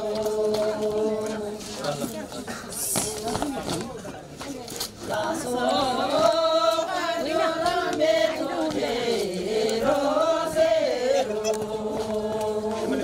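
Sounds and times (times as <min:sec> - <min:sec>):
voices singing slow chant: 0:00.0 - 0:02.0, 0:05.0 - 0:13.0.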